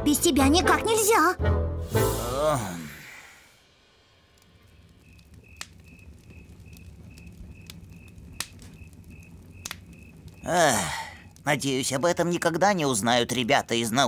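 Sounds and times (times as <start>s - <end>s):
cricket chirping: 5.0s - 10.5s
sharp clicks: 5.0s - 10.5s.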